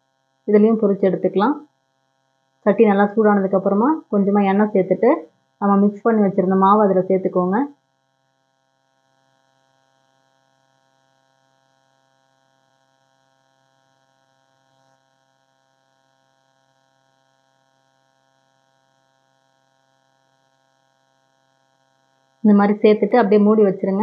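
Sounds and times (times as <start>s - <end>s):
faint electrical hum: 2.7s - 7.7s.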